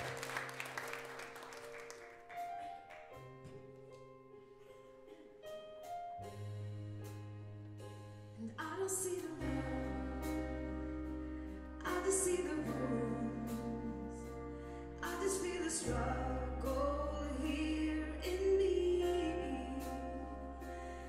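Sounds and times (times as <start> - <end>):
big band ballad with keyboard: 5.5 - 21.0
low bass: 6.2 - 21.0.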